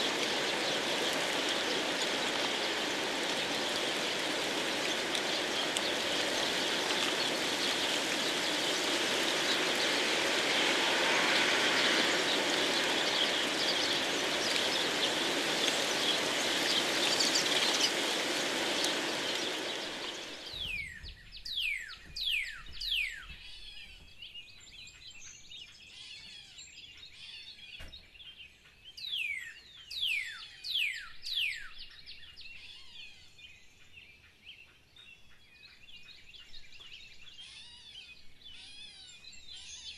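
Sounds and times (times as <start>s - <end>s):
heavy rain: 0.0s - 23.2s
storm wind: 0.0s - 23.3s
birds whistling: 0.0s - 33.6s.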